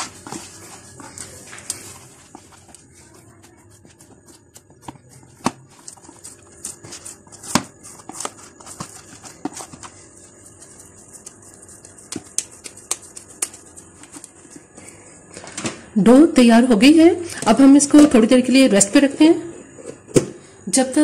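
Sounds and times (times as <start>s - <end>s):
hands kneading sticky dough: 0.0s - 15.4s.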